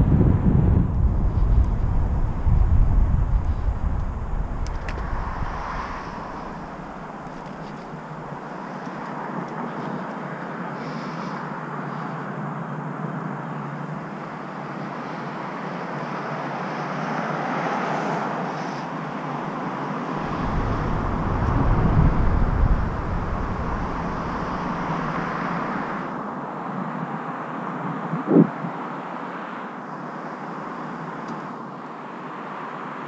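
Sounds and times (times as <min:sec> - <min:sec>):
deep rumble: 0:00.0 - 0:07.9, 0:20.2 - 0:26.1
wind rushing: 0:00.0 - 0:08.2, 0:20.2 - 0:26.2
road traffic below: 0:00.0 - 0:33.0
bicycle tyres on concrete: 0:00.4 - 0:08.4.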